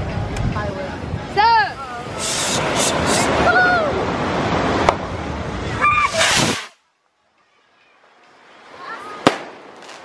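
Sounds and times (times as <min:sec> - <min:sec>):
wind: 0:00.0 - 0:10.0
surf rushing: 0:01.6 - 0:06.8
faint hiss: 0:01.6 - 0:10.0
rushing burst: 0:01.9 - 0:04.9, 0:05.8 - 0:06.8
rocket fuse burning and sparking: 0:02.0 - 0:03.3, 0:06.0 - 0:06.8.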